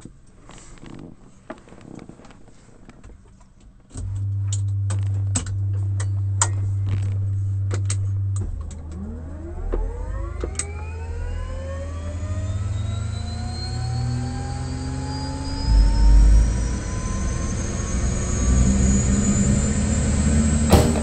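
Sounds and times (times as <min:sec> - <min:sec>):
helicopter engine starting: 0:15.2 - 0:21.0.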